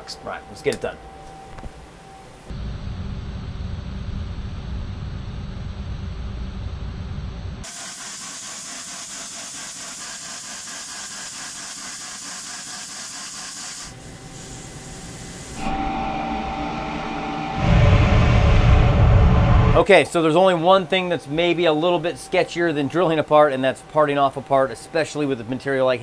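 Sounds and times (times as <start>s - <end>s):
steady machine whine: 0.0s - 7.7s, 13.9s - 26.0s
low rumble: 2.5s - 7.6s, 15.6s - 19.9s
coolant spraying hiss: 7.6s - 15.6s.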